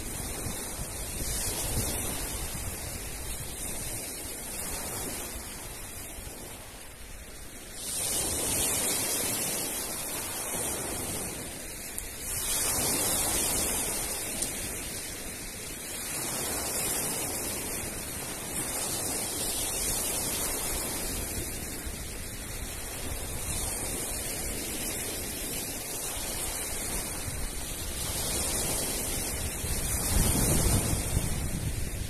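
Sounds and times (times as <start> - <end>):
surf breaking over pebbles: 7.6 - 32.0.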